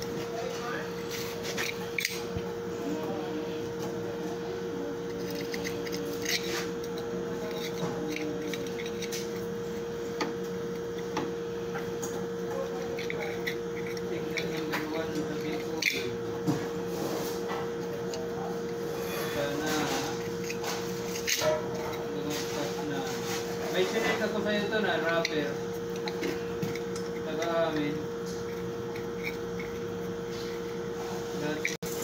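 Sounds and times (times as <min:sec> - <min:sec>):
steady hum: 0:00.0 - 0:32.0.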